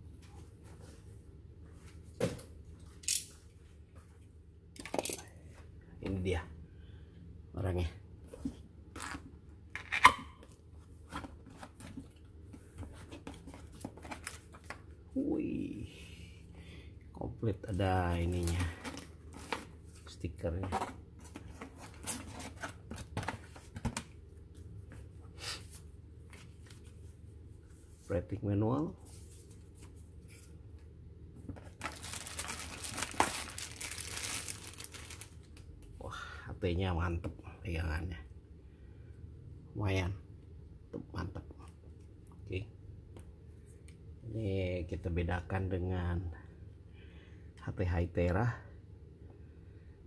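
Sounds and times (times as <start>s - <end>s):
cardboard and paper rustling: 11.0s - 14.8s, 18.2s - 24.0s, 31.4s - 35.4s
plastic bag crinkling: 31.6s - 35.6s.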